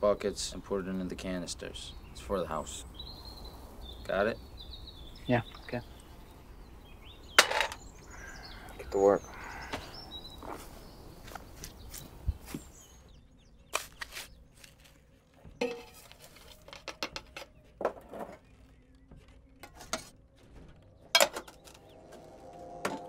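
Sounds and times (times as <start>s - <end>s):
metal canisters clinking: 21.1s - 21.8s.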